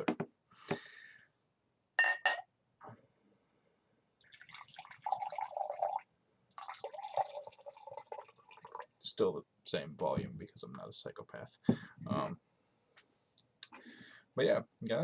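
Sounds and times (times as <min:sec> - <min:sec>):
glass clinks: 0:02.0 - 0:02.5
liquid pouring into a glass: 0:04.2 - 0:09.0.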